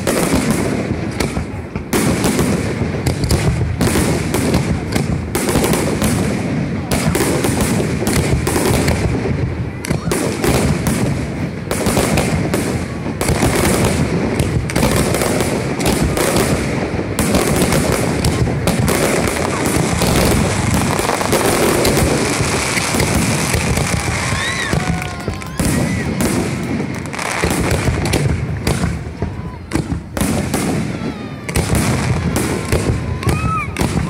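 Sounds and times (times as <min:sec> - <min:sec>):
fireworks bangs and crackling: 0:00.0 - 0:34.0.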